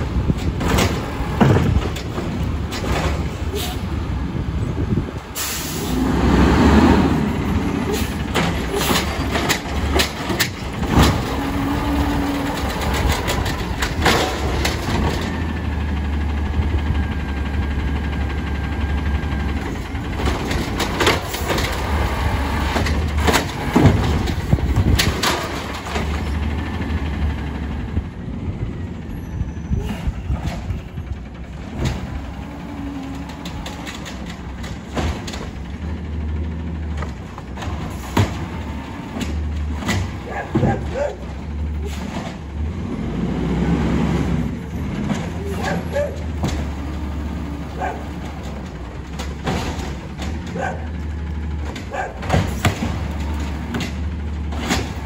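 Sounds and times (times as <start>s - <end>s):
carts clunking and banging: 0.0s - 55.0s
garbage truck engine droning: 0.0s - 55.0s
hydraulic arm lifting carts: 0.0s - 55.0s.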